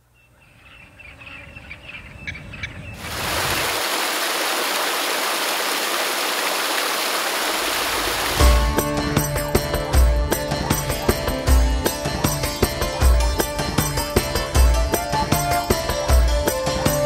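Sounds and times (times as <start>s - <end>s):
rushing water: 3.0s - 9.0s.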